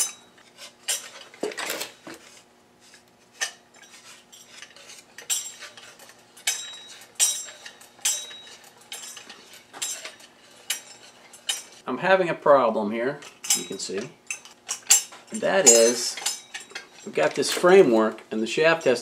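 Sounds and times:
sharp clicks and metallic clinks: 3.4s - 11.8s, 13.2s - 19.0s.

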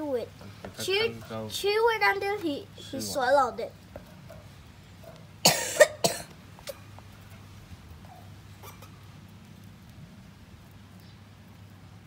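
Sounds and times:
low background noise: 0.0s - 12.0s
person coughing: 5.4s - 6.8s.

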